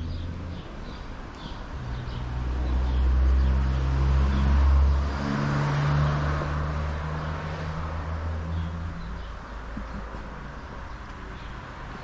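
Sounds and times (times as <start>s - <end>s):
vehicle engine passing by: 1.8s - 10.1s.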